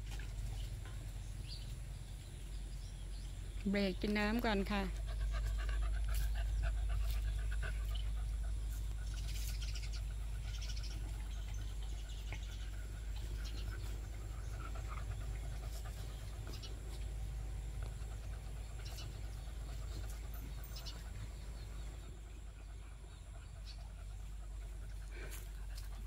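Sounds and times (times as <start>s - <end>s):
dog panting: 4.3s - 26.0s
faint bird chirps: 7.9s - 17.0s.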